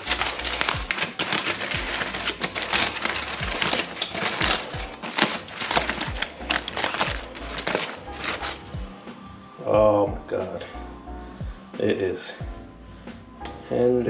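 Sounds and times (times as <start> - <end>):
aluminium foil crinkling: 0.0 - 8.8
background music with beat: 0.0 - 13.8.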